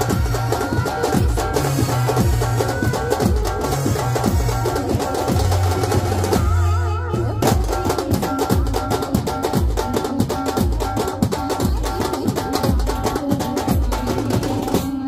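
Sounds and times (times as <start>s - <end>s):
marching drums beating: 0.0s - 6.6s.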